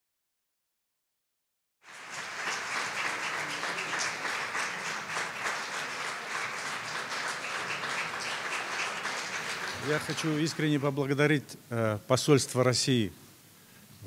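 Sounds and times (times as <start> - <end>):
audience applauding: 1.8 - 11.0.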